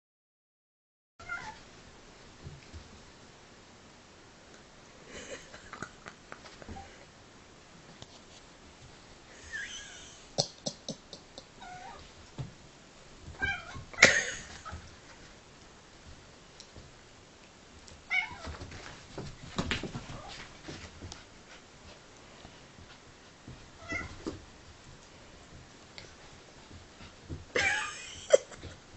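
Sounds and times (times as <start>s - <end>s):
scuffling knocks and clicks: 17.8s - 27.6s.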